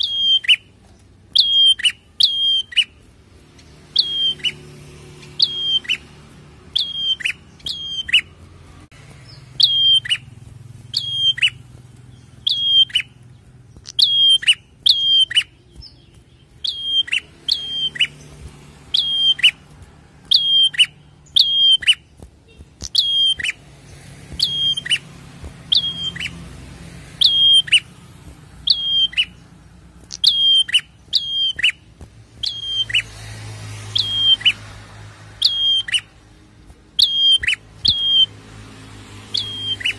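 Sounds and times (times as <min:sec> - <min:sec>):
tailorbird calling: 0:00.0 - 0:33.1, 0:33.8 - 0:36.3, 0:36.9 - 0:38.4, 0:39.2 - 0:39.9.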